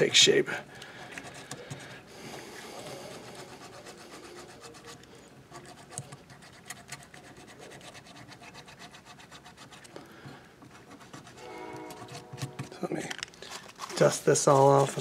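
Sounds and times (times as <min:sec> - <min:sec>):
sandpaper scratching wax: 0:02.4 - 0:10.0, 0:10.7 - 0:15.0.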